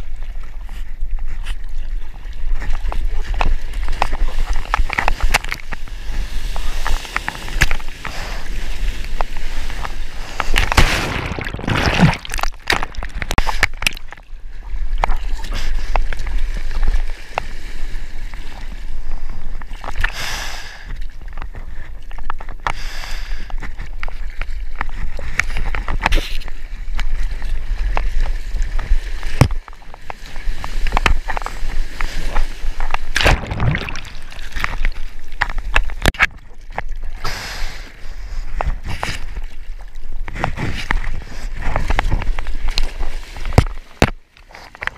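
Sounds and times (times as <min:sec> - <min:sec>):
sharp water splashes and knocks: 0:02.4 - 0:17.6, 0:19.5 - 0:20.2, 0:23.5 - 0:37.2, 0:38.6 - 0:44.9
surf water rushing and sloshing: 0:23.3 - 0:44.9.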